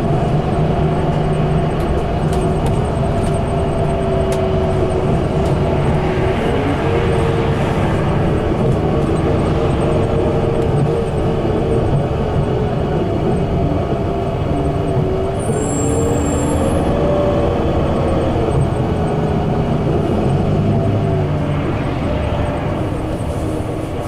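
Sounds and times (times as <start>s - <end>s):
bus engine under load: 0.0s - 24.0s
road and tyre noise: 0.0s - 24.0s
transmission whine: 0.0s - 24.0s.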